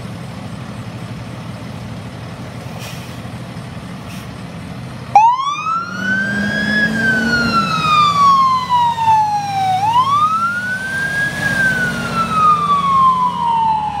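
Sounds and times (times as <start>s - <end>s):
ambulance siren wailing: 5.1s - 14.0s.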